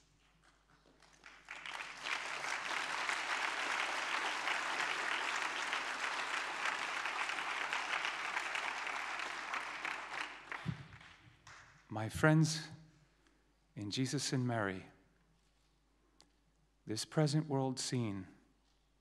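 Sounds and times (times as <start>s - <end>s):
audience applauding: 0.9s - 11.6s.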